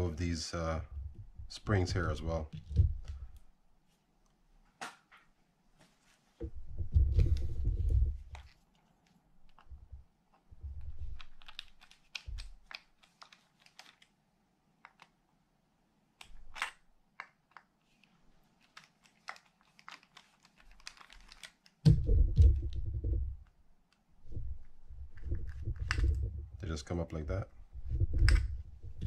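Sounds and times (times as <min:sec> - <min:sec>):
dull low handling rumble: 0:21.9 - 0:23.5, 0:24.2 - 0:29.0.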